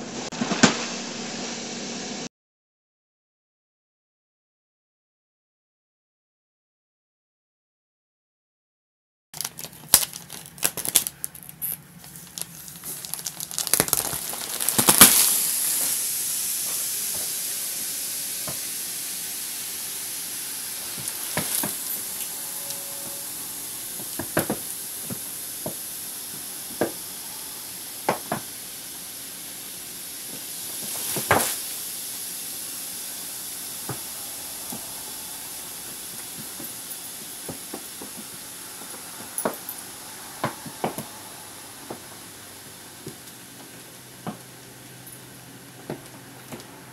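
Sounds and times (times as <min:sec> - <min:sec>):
plastic wrap crinkling: 0:09.4 - 0:16.1, 0:19.9 - 0:27.0, 0:30.2 - 0:31.8
air hissing into plastic bag: 0:09.4 - 0:46.9.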